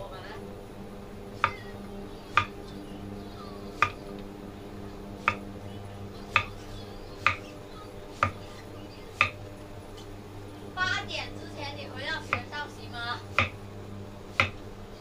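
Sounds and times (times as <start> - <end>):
steady low hum: 0.0 - 15.0
cleaver knocking on chopping block: 1.4 - 1.7, 2.3 - 2.6, 3.8 - 4.0, 5.2 - 5.4, 6.4 - 6.6, 13.4 - 13.6, 14.4 - 14.6.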